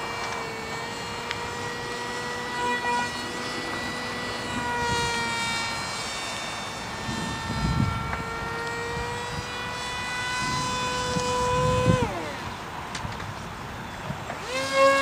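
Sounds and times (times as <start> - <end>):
model plane motor whine: 0.0 - 15.0.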